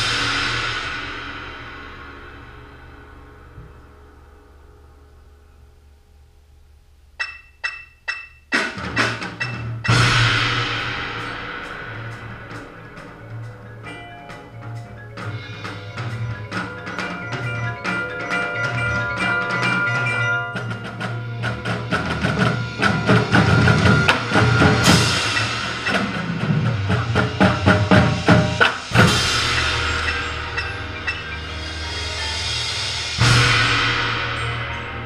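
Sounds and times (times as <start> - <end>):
loud cymbal crashes: 0.0 - 5.6, 9.9 - 14.0, 15.3 - 35.0
snare and tenor drums playing: 7.2 - 35.0
sustained pitched chords: 9.9 - 35.0.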